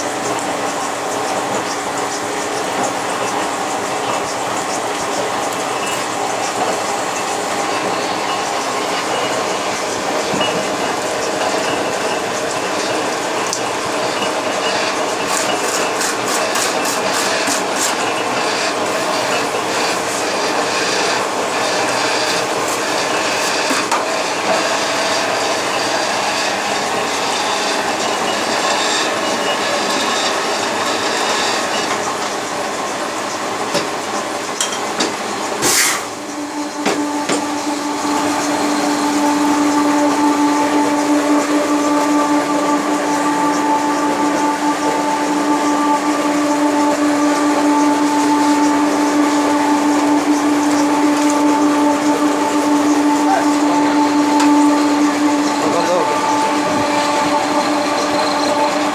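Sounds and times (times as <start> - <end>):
steady hum: 35.5 - 58.9.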